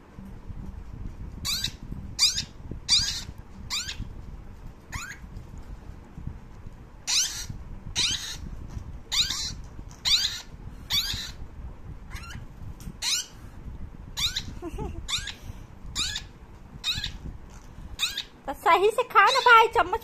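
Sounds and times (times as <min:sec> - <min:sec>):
parakeet chicks begging calls: 0:01.4 - 0:04.1, 0:04.9 - 0:05.3, 0:07.0 - 0:11.4, 0:12.1 - 0:13.5, 0:14.1 - 0:18.4, 0:19.2 - 0:19.8.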